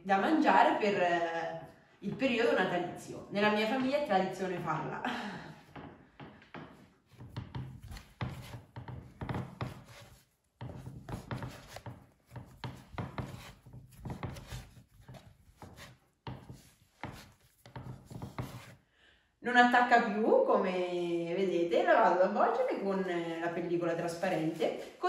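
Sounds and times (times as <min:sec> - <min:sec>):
dough being kneaded: 0:07.0 - 0:18.8.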